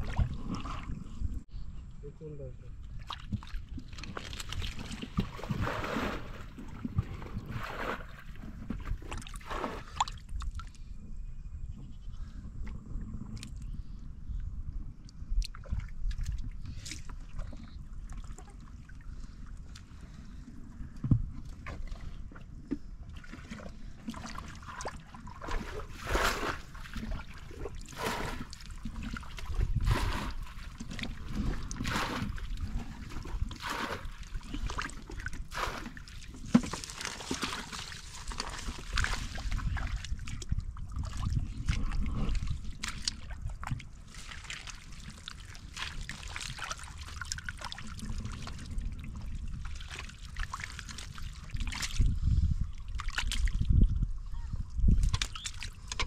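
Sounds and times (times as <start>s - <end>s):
hands splashing in muddy water: 3.0s - 10.3s, 23.2s - 48.6s.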